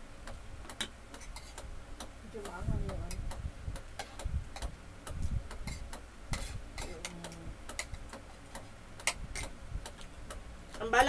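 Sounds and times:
soft low thumps: 0:02.3 - 0:08.0.

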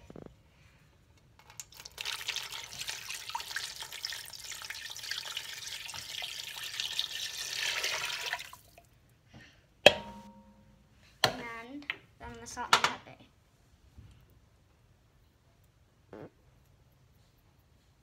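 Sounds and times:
water pouring into a metal pot: 0:01.4 - 0:08.9
sharp knock: 0:09.9 - 0:10.6.

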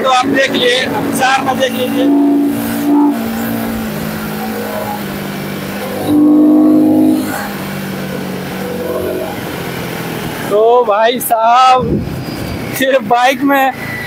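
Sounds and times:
motorcycle engine at speed: 0:00.0 - 0:10.7
vehicle horn: 0:00.6 - 0:09.6.

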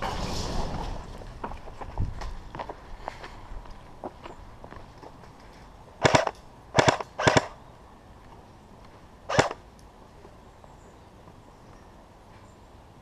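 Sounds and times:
airsoft gun firing bursts: 0:06.0 - 0:07.6, 0:09.3 - 0:09.6.

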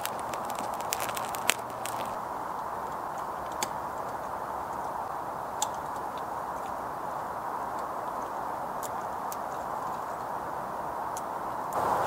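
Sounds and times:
resin crackling and snapping: 0:00.0 - 0:02.2
steady hiss: 0:00.0 - 0:12.0.

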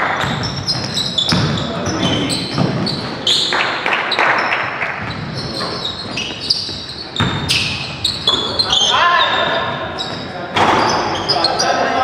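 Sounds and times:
basketball bouncing on hardwood: 0:00.0 - 0:03.0, 0:07.2 - 0:07.6
sneakers squeaking: 0:00.0 - 0:12.0.

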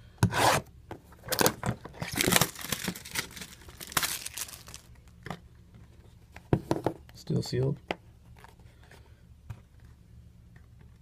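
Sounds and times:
cardboard box rustling: 0:01.3 - 0:04.9.

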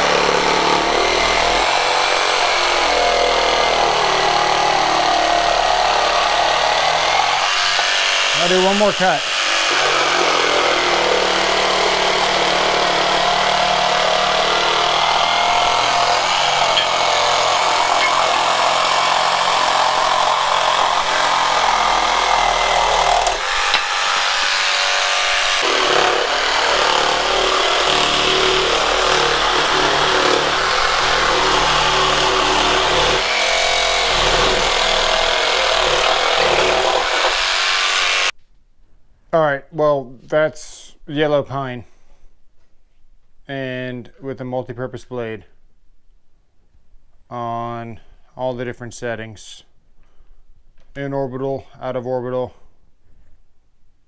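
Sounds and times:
jigsaw cutting wood: 0:00.0 - 0:38.3.

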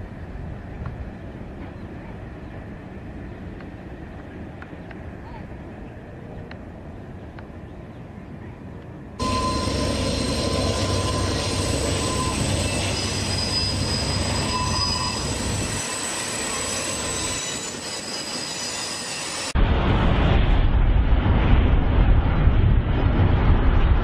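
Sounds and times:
freight train rumbling: 0:00.0 - 0:24.0
wheels squealing on curve: 0:09.2 - 0:19.5.

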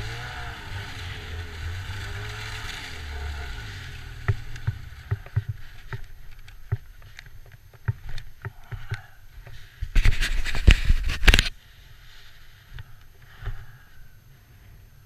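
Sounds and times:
loud rough rush: 0:00.0 - 0:06.3
snowmobile engine hum: 0:00.0 - 0:07.1
knocks and scrapes on rock: 0:04.3 - 0:11.5.

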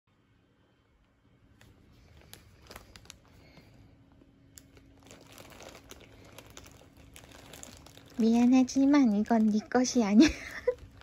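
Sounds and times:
plastic bags crinkling: 0:01.6 - 0:11.0.

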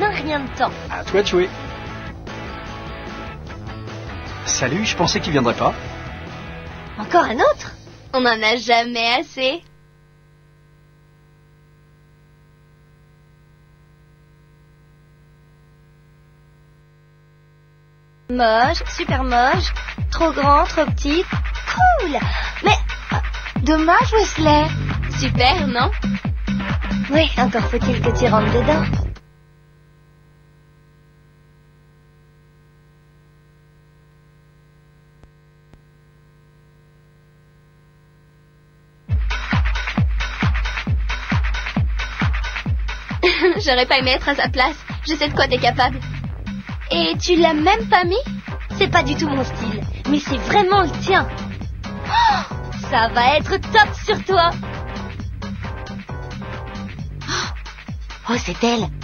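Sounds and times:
electrical hum: 0:00.0 - 0:39.4
tape hiss: 0:00.0 - 0:59.0
faint tape hiss: 0:07.0 - 0:19.5, 0:29.0 - 0:39.1.

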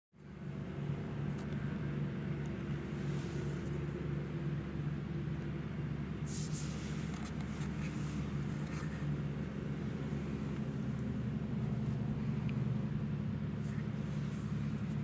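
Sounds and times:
low engine hum: 0:00.2 - 0:15.0
short hiss: 0:06.2 - 0:08.3.

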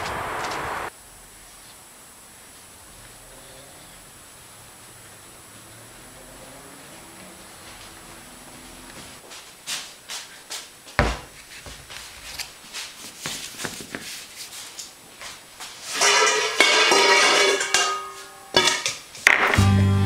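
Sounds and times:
pumpkins knocking on countertop: 0:11.0 - 0:11.3.

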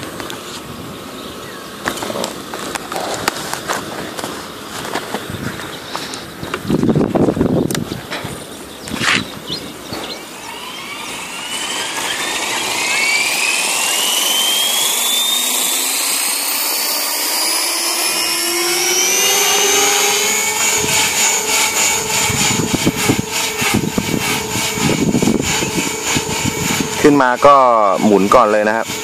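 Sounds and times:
model helicopter whine: 0:00.0 - 0:29.0
rough uneven rushing: 0:18.6 - 0:29.0.

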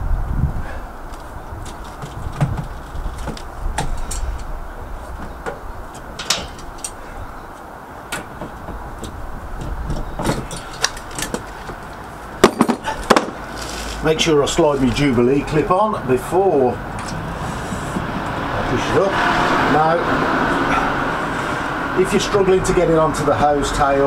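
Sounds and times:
plastic hose clicks and knocks: 0:01.2 - 0:04.2.

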